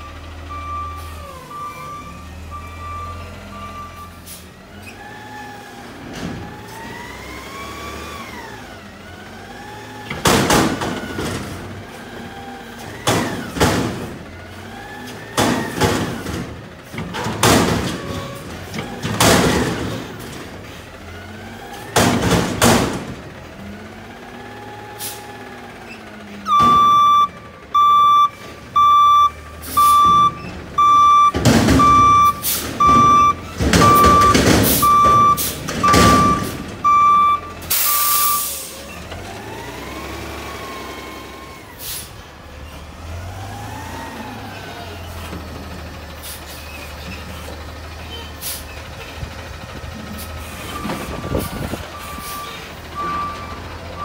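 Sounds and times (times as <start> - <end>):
reversing alarm beeping: 0.0 - 4.3, 26.5 - 38.6
air brakes hissing: 4.2 - 4.5, 25.0 - 25.3, 31.9 - 33.0, 37.7 - 38.9, 41.8 - 42.2, 48.4 - 48.7.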